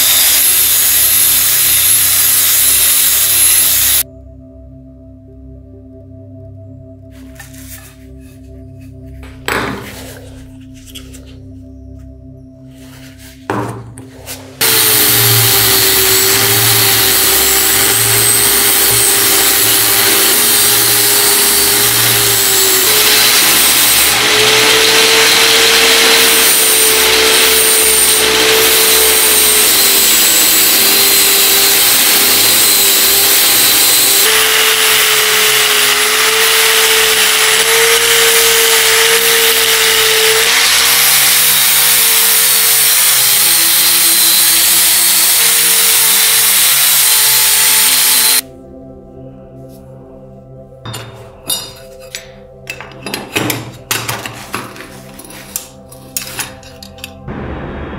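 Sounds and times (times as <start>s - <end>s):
electric power tool running: 0.0s - 4.0s, 14.6s - 48.4s.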